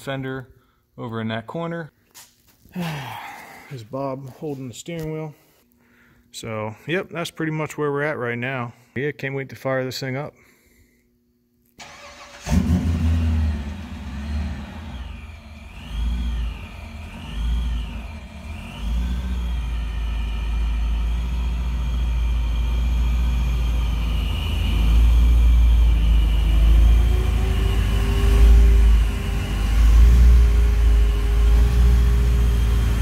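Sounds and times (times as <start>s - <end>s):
car engine revving: 11.8s - 33.0s
supercharger whine: 11.9s - 33.0s.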